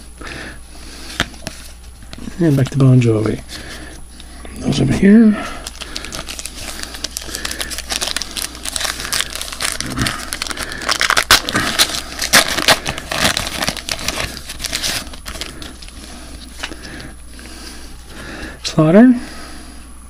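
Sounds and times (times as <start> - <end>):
wrapper crinkling and tearing: 5.5 - 17.0.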